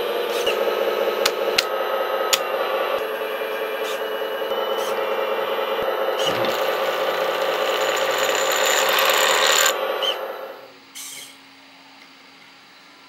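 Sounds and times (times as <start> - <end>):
hydraulic pump buzzing: 1.6 - 10.5.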